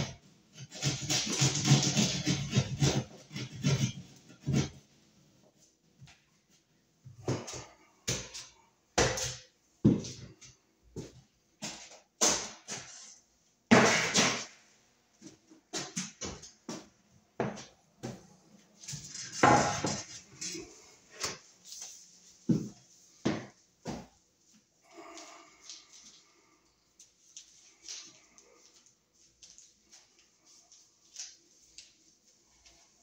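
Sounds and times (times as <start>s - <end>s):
hand tool rasping at wall: 0.6s - 4.8s.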